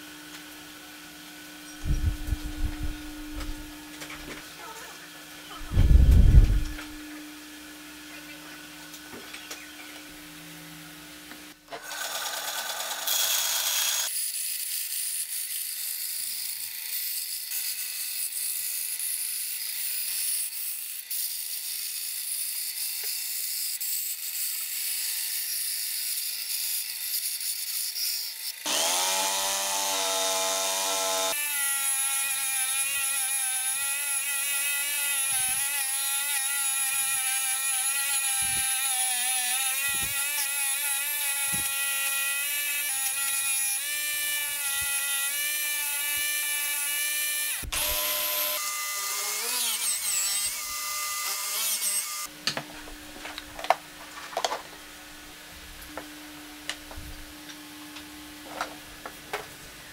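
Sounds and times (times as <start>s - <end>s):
saw motor whining: 11.8s - 20.2s, 20.8s - 52.3s.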